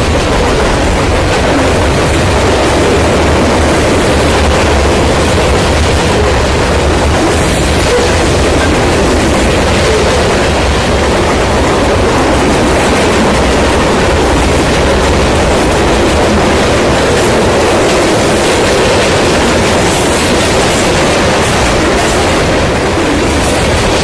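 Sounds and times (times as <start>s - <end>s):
freight train rumbling past: 0.0s - 24.0s
steel wheels on rails: 0.0s - 24.0s.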